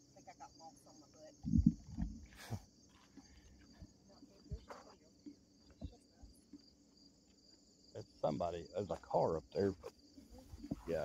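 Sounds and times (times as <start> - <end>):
crickets trilling: 0.0 - 11.0
soft low thumps: 1.4 - 2.3.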